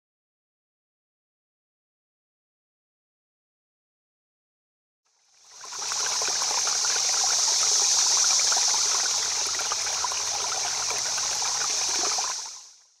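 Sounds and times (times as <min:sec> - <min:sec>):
river water babbling: 0:05.4 - 0:12.8.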